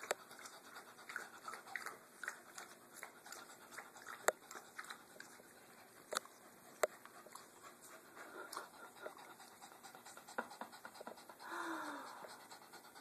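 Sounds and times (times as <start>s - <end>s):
small dog panting: 0.0s - 13.0s.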